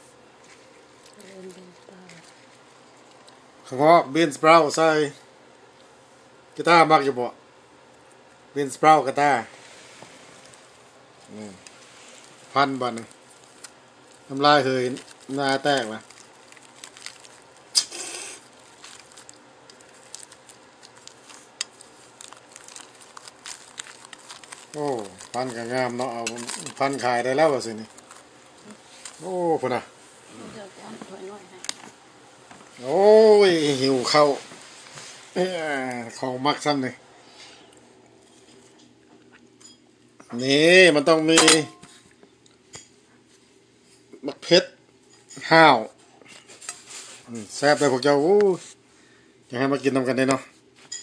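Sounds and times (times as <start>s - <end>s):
rice paper squishing and crinkling: 9.4s - 31.8s, 32.6s - 36.1s
paper rustle: 18.6s - 27.2s.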